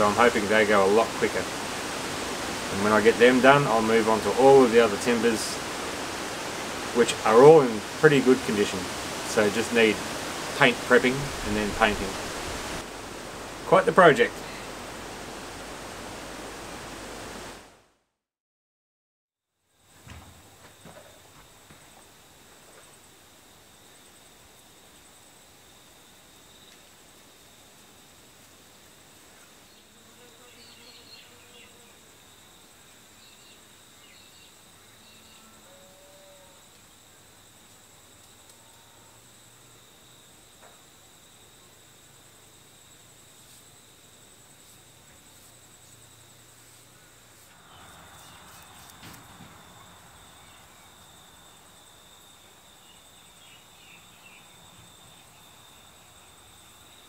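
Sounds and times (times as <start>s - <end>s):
rush of noise: 0.0s - 17.8s
high-pitched insect trill: 19.7s - 57.0s.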